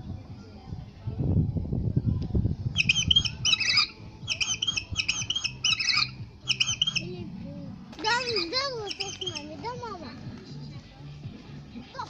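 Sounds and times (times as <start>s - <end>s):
high chirping squawks: 2.8s - 7.1s, 8.0s - 9.6s
low rumble: 6.2s - 8.8s.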